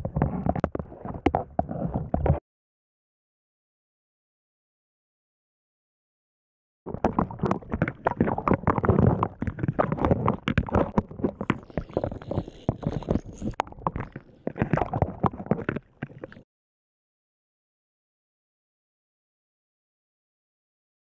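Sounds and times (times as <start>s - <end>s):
water sloshing and splashing: 6.9s - 16.4s.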